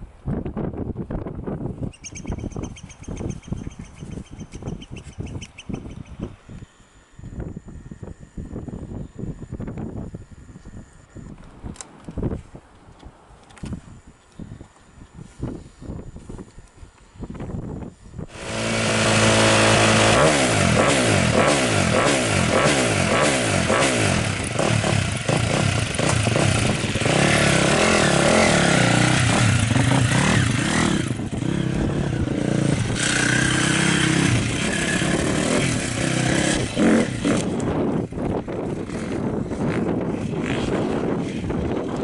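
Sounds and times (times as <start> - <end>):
motocross bike engine revving: 18.3 - 41.6.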